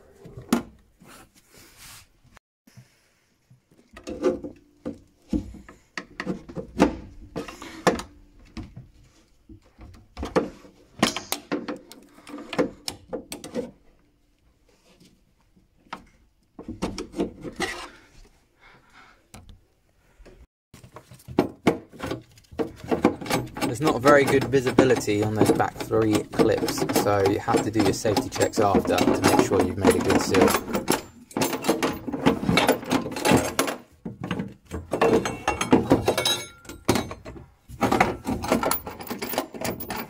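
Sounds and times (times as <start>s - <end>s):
plastic and metal parts knocking: 20.8s - 40.0s.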